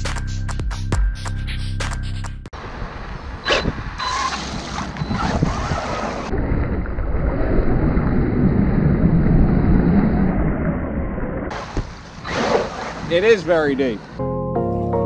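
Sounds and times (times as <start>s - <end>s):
wind buffeting microphone: 2.6s - 14.1s
tyres splashing through water: 11.5s - 14.2s.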